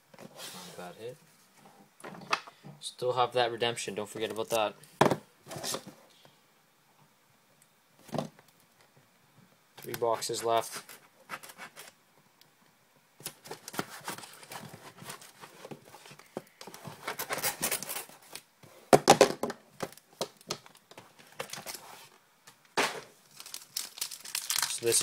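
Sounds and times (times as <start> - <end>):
plastic shrink-wrap crinkling: 23.2 - 25.0.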